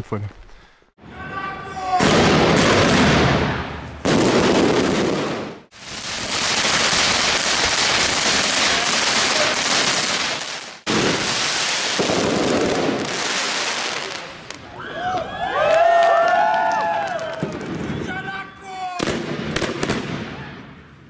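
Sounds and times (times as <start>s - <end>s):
fireworks crackling: 1.7s - 14.7s, 19.0s - 21.0s.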